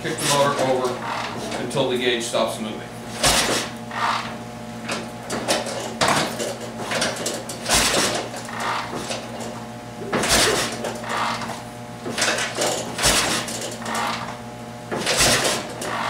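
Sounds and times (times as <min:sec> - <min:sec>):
motorcycle engine kick-started: 0:03.2 - 0:09.5, 0:10.1 - 0:14.4, 0:15.0 - 0:16.0
small engine knocks: 0:04.9 - 0:16.0.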